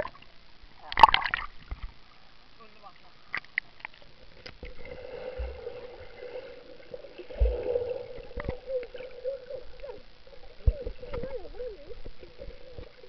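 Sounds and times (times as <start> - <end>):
underwater water movement: 3.3 - 13.0.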